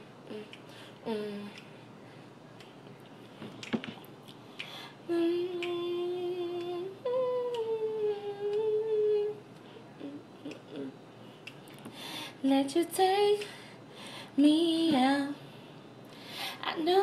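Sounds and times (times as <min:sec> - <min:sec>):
person humming: 0:00.3 - 0:01.6, 0:05.1 - 0:09.4, 0:10.0 - 0:11.0.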